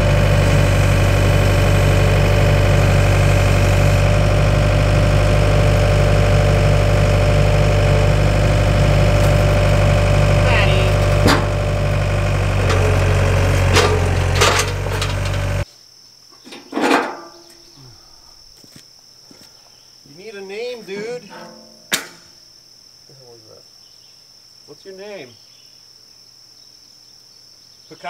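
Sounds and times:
tractor engine running: 0:00.0 - 0:15.6
insects chirring: 0:00.2 - 0:28.0
sharp click: 0:21.4 - 0:22.3.

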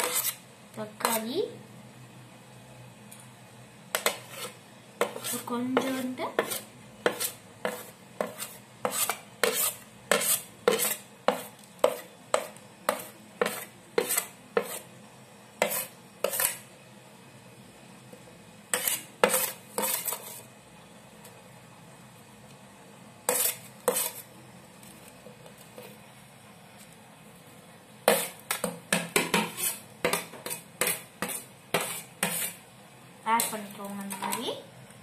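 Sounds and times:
metal spoon scraping ceramic plate: 0:29.4 - 0:32.6.

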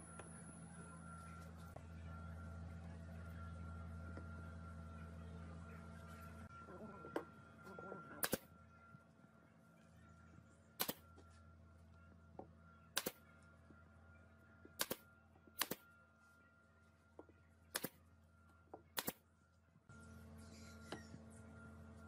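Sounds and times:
faint steady hum: 0:00.0 - 0:22.0
nail gun firing: 0:08.2 - 0:08.4, 0:10.8 - 0:11.0, 0:13.0 - 0:13.2, 0:14.8 - 0:15.0, 0:15.6 - 0:15.8, 0:17.7 - 0:18.0, 0:19.0 - 0:19.2.

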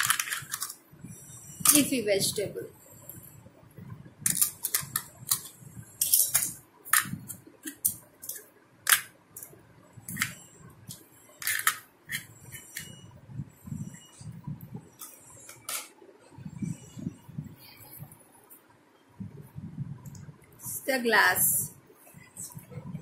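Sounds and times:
plastic toys clicking together: 0:00.0 - 0:00.8, 0:04.3 - 0:09.5.

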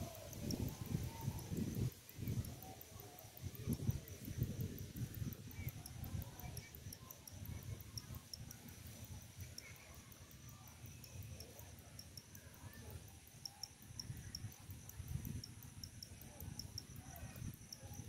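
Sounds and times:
insects chirping: 0:00.0 - 0:18.0.

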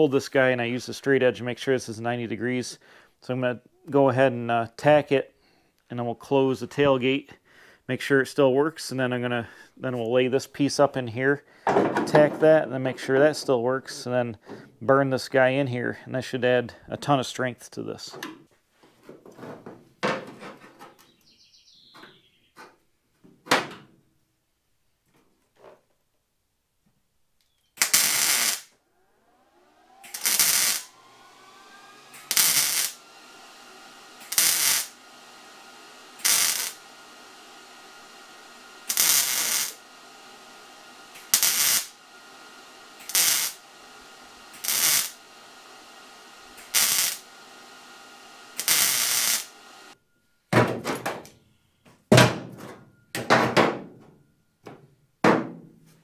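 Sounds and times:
welder hum: 0:12.1 - 0:14.3, 0:27.7 - 0:50.0
welding arcs: 0:27.8 - 0:28.8, 0:30.0 - 0:50.0.

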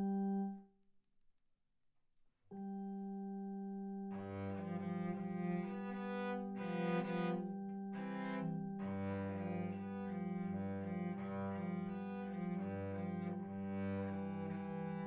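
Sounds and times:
bowed cello notes: 0:04.1 - 0:15.0.

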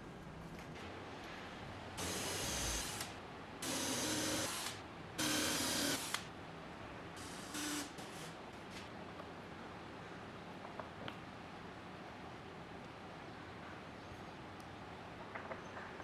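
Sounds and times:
cordless drill boring wood: 0:02.0 - 0:06.2, 0:07.2 - 0:08.3.

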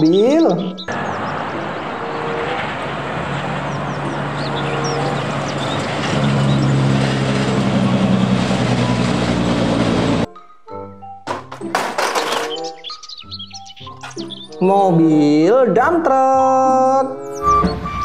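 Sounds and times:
truck engine hum: 0:00.0 - 0:10.3
tyre and road noise: 0:00.0 - 0:10.3, 0:11.2 - 0:14.7.

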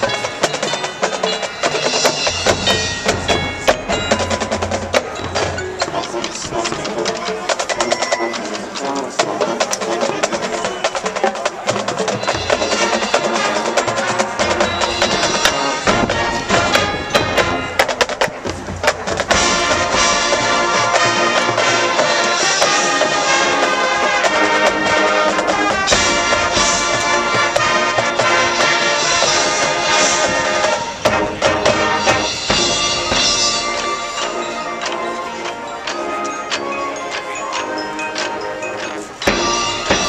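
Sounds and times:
marching band playing: 0:00.0 - 0:40.0
brass sustained chords: 0:12.4 - 0:17.8, 0:19.3 - 0:40.0
sharp drum hits: 0:31.0 - 0:33.9.

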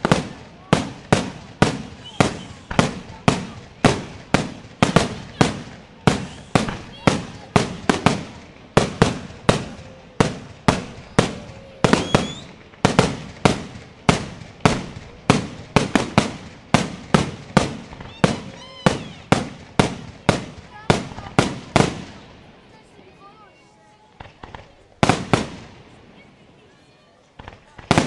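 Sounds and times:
fireworks bursting: 0:00.0 - 0:28.0
rising firework whistle: 0:01.8 - 0:02.9, 0:06.1 - 0:07.4, 0:08.9 - 0:12.6, 0:17.9 - 0:19.4.

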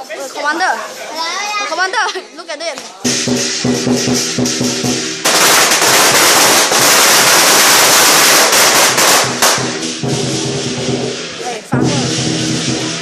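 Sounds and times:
firecrackers crackling: 0:02.7 - 0:13.0
lion dance percussion: 0:03.0 - 0:13.0.

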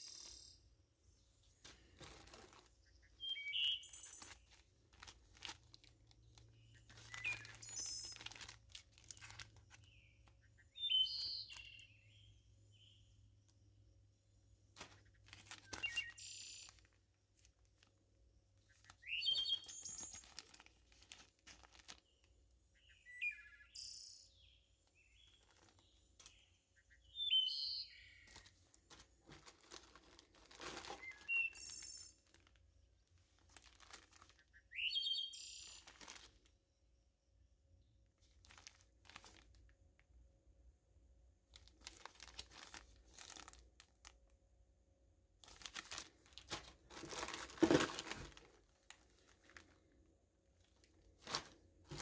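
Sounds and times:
bird chirping: 0:00.0 - 0:01.6, 0:02.5 - 0:04.7, 0:06.2 - 0:13.6, 0:14.9 - 0:17.0, 0:18.6 - 0:20.8, 0:21.8 - 0:28.9, 0:30.8 - 0:33.0, 0:34.2 - 0:36.0
plastic bags crinkling: 0:01.6 - 0:10.3, 0:14.8 - 0:22.4, 0:24.9 - 0:26.4, 0:28.2 - 0:34.5, 0:35.6 - 0:36.5, 0:38.2 - 0:39.8, 0:41.5 - 0:44.3, 0:45.4 - 0:52.0.

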